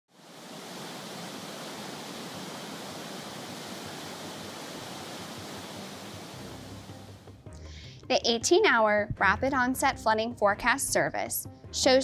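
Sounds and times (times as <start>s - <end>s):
water rushing over rapids: 0.1s - 7.2s.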